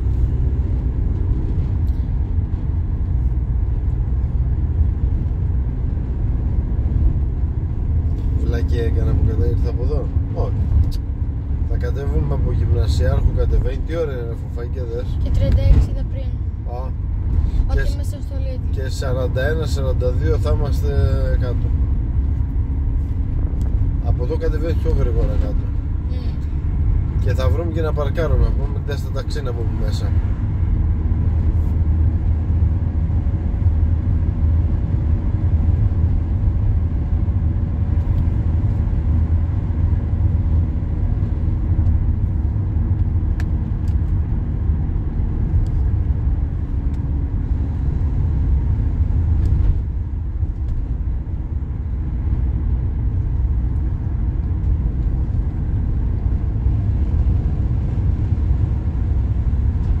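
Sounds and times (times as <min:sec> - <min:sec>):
car engine and road rumble: 0:00.0 - 1:00.0.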